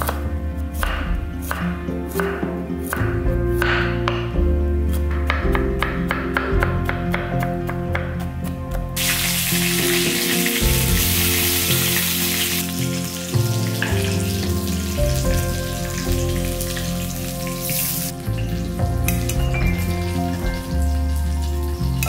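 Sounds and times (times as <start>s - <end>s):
background music: 0.0s - 22.0s
chicken sizzling in hot oil: 9.0s - 18.8s.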